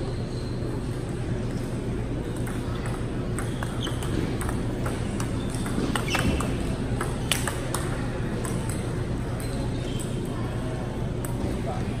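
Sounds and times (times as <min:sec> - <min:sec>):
table tennis ball clicking: 0:02.4 - 0:08.8.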